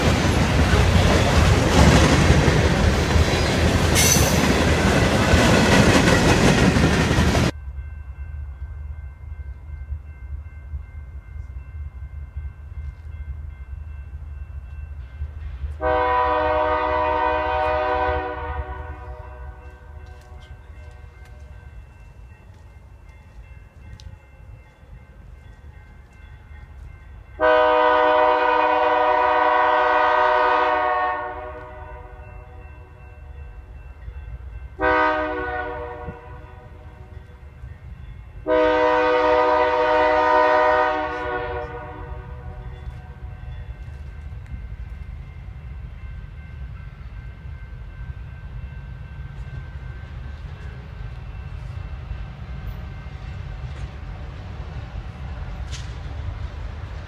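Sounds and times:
low rumble of train: 0.0 - 57.0
locomotive air horn blasts: 15.8 - 20.0, 27.4 - 32.2, 34.8 - 37.1, 38.4 - 43.2.

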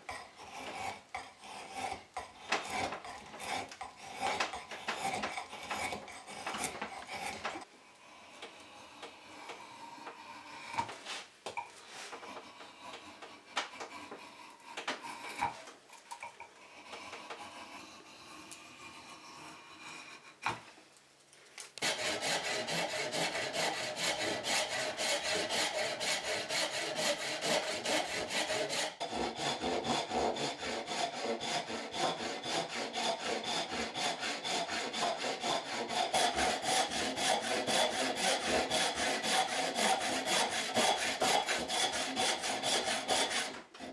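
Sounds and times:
backsaw sawing wood: 0.0 - 7.7, 11.9 - 20.6, 21.8 - 43.9
rasp scraping wood: 0.0 - 7.7, 21.8 - 43.9.

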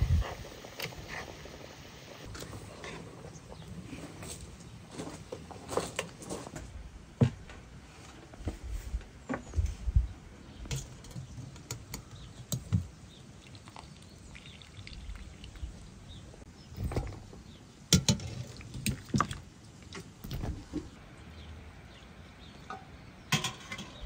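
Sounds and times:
water splashing and dripping: 13.4 - 15.9.

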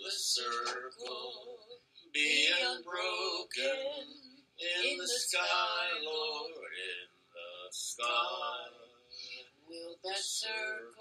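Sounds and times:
person singing: 0.0 - 1.5, 2.2 - 9.4.

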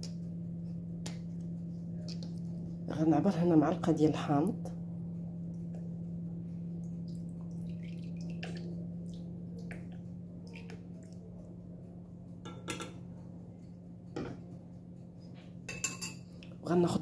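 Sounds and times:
steady low hum: 0.0 - 17.0
liquid dripping into metal spoon: 6.8 - 11.3.

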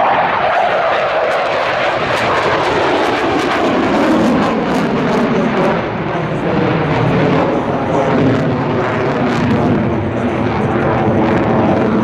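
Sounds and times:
fighter jet engines roaring: 0.0 - 12.0.

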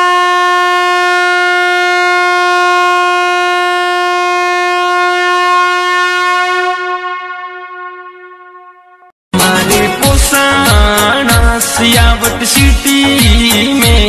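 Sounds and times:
train horn blast: 0.0 - 9.1.

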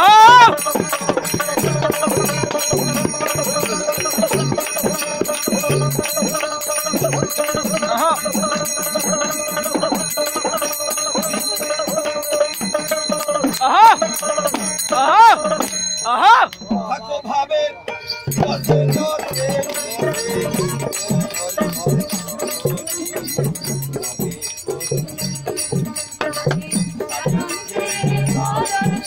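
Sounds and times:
hand drum beating: 0.0 - 17.0, 18.3 - 29.0
hand-clapping: 0.4 - 16.7, 19.2 - 25.0
brass hand cymbals ringing: 0.4 - 29.0.

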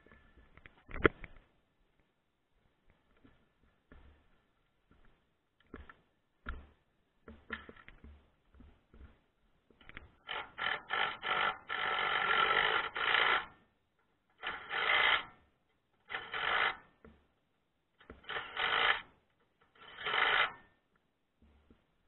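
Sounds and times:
ratchet wrench clicking: 10.3 - 13.5, 14.4 - 15.3, 18.1 - 19.1, 19.8 - 20.6.

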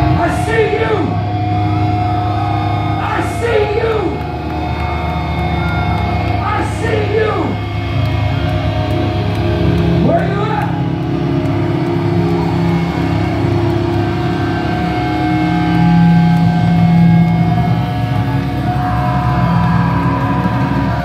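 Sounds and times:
distorted electric guitar chords: 0.0 - 21.0
metalcore band playing: 0.0 - 21.0.

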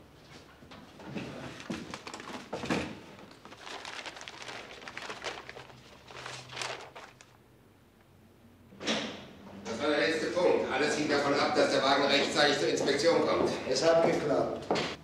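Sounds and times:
paper rustling and crinkling: 1.2 - 7.4.

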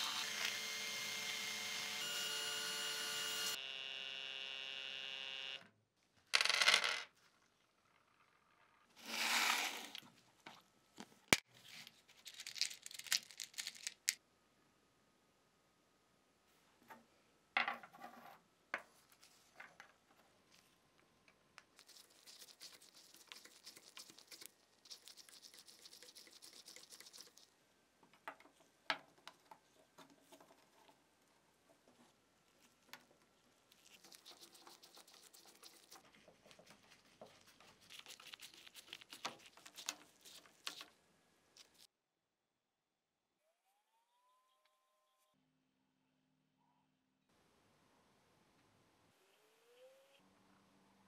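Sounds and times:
rubbing or brushing: 9.0 - 10.0, 21.8 - 27.5, 33.7 - 40.9.

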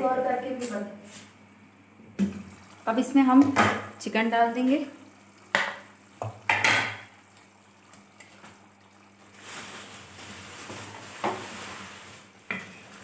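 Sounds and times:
curry bubbling in pot: 2.2 - 11.4.

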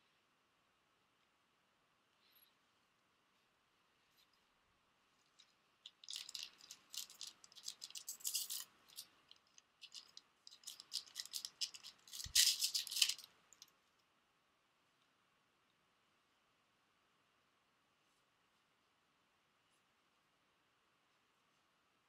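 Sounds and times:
crinkly wrapper tearing: 5.8 - 13.7.

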